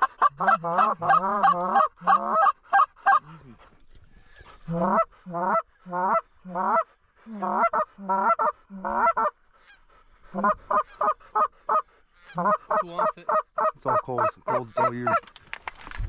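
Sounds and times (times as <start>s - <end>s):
goose honking: 0.0s - 3.2s, 4.6s - 15.2s.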